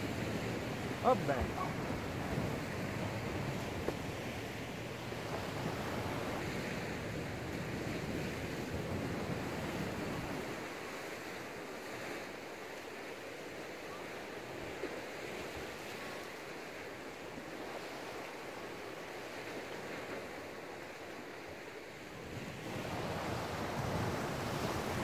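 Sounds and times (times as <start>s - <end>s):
wind on microphone: 0.0s - 10.9s, 22.4s - 25.0s
sea waves on rocky shore: 0.0s - 25.0s.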